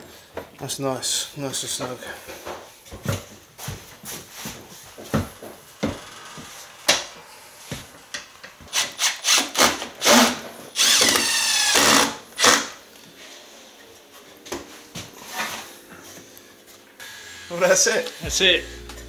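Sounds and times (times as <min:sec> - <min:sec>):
cordless drill whirring: 0:08.7 - 0:12.8.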